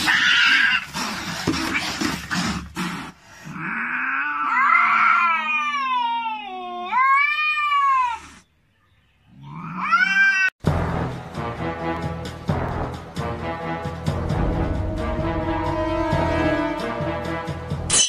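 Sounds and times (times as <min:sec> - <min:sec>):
cats yowling: 0:00.0 - 0:01.0, 0:03.5 - 0:08.4, 0:09.3 - 0:10.6
background music: 0:10.6 - 0:18.0.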